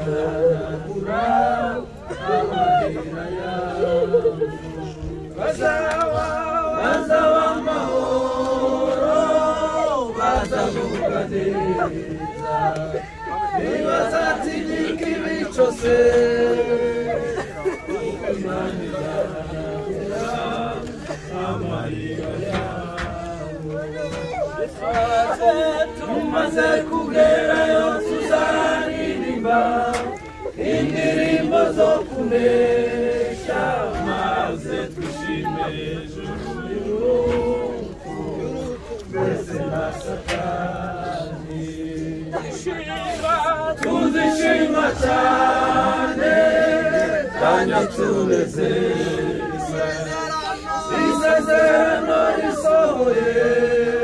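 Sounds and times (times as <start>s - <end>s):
crowd singing a hymn: 0.0s - 54.0s.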